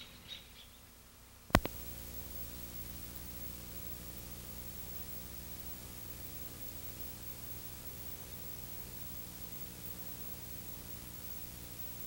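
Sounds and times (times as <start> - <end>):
tape hiss: 0.0 - 12.0
sharp click: 1.5 - 1.8
low hum: 1.5 - 12.0.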